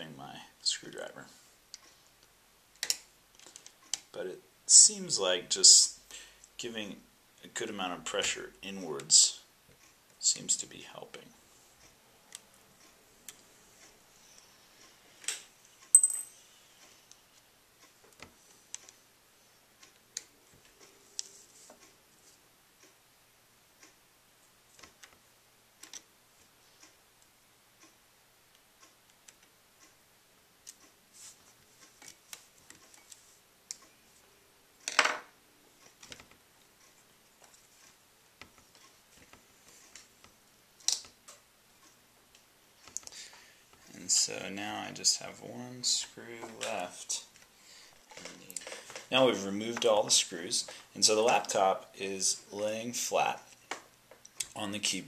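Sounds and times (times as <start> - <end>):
sharp metallic clink: 15.9 - 16.4.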